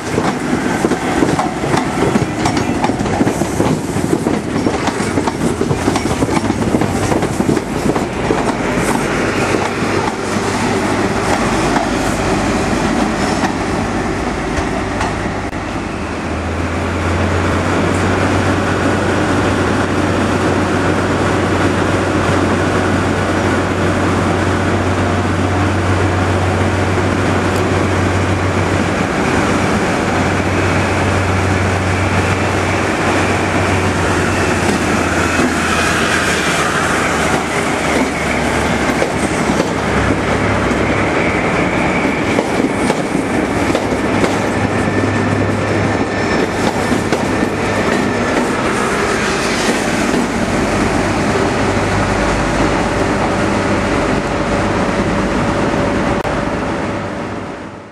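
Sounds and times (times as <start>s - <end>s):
train wheels clicking over rail joints: 0.0s - 12.0s, 33.6s - 41.1s, 41.8s - 50.8s.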